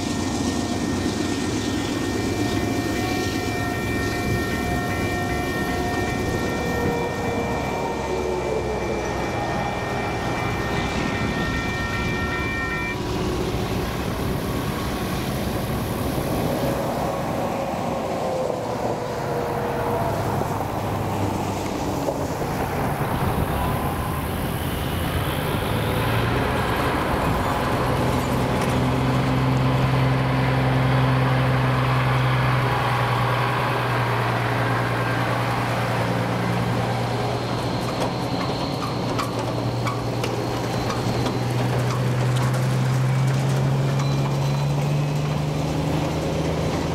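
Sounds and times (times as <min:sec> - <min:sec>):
cars passing: 0:00.0 - 0:46.9
low engine hum: 0:00.0 - 0:46.9
truck diesel engine: 0:00.0 - 0:46.9
crossing signal bell ringing: 0:02.0 - 0:13.1.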